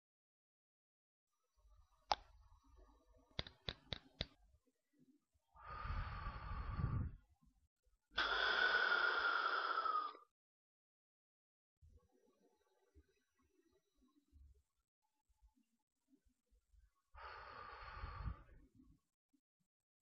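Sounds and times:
deep breath in through inhaler: 0:05.6 - 0:07.2, 0:08.2 - 0:10.2, 0:17.2 - 0:18.6
breath out: 0:08.2 - 0:10.2.

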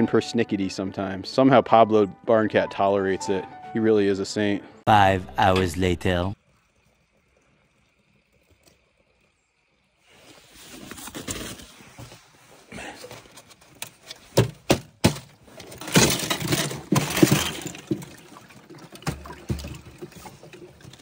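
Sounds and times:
ice crackling and clinking: 0:15.4 - 0:21.0
water sloshing: 0:15.6 - 0:21.0.

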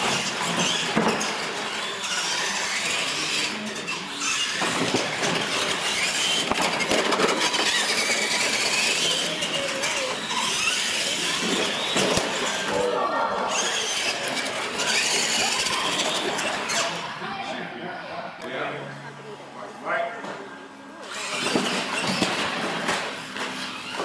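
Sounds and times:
electric motors whining: 0:00.0 - 0:19.6, 0:20.4 - 0:24.0
tyre noise and squeaks: 0:00.1 - 0:12.8, 0:13.5 - 0:17.1, 0:21.1 - 0:24.0.

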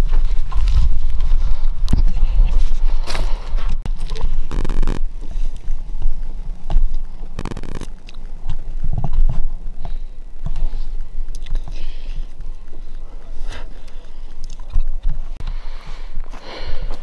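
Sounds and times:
wind buffeting microphone: 0:00.0 - 0:11.8.

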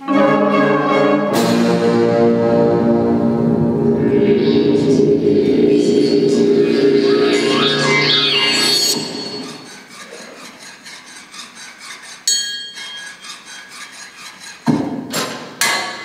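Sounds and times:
concert band playing: 0:00.0 - 0:09.2.

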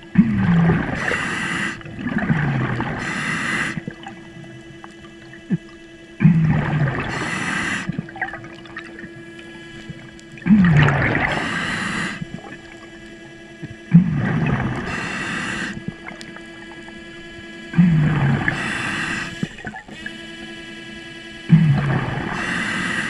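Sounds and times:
exhaled bubbles rushing: 0:00.0 - 0:20.1, 0:21.5 - 0:22.6
underwater scooter motor whine: 0:00.0 - 0:23.0
diving regulator hiss: 0:00.9 - 0:01.9, 0:02.8 - 0:04.0, 0:06.9 - 0:08.0, 0:11.2 - 0:12.6, 0:14.2 - 0:16.0, 0:17.8 - 0:19.6, 0:21.9 - 0:23.0.

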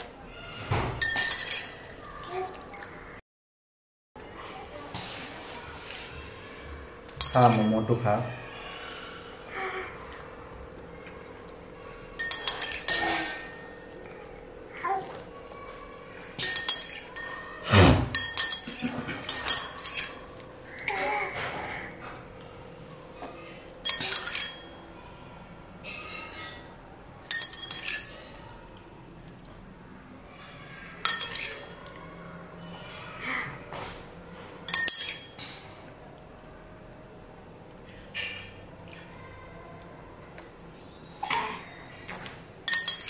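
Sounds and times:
spoon clinking against mug: 0:01.0 - 0:01.8, 0:12.2 - 0:13.6, 0:16.4 - 0:17.4, 0:18.1 - 0:20.2, 0:23.8 - 0:24.7, 0:27.3 - 0:28.2, 0:34.7 - 0:35.4, 0:42.7 - 0:43.0.

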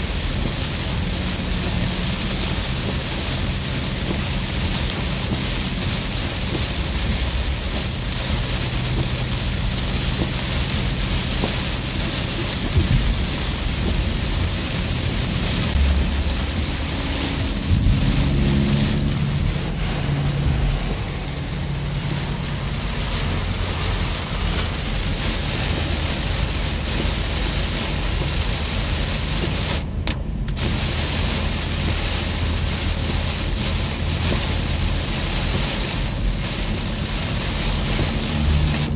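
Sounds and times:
car driving through water: 0:00.0 - 0:38.9
heavy rain on car roof: 0:00.0 - 0:38.9
low rumble: 0:02.4 - 0:33.4.

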